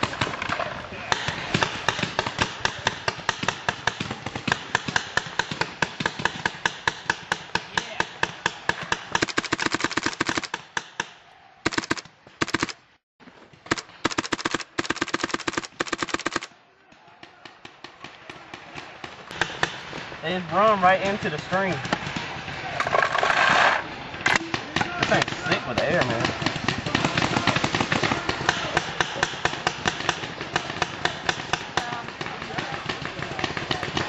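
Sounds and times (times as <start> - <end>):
paintball markers firing: 0.0 - 12.8, 13.6 - 22.5, 24.3 - 34.0.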